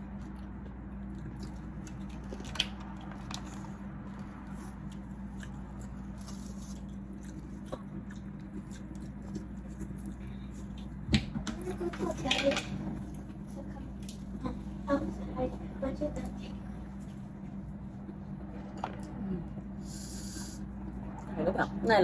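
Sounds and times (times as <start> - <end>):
mouth chewing: 0.0 - 11.0
low hum: 0.0 - 22.0.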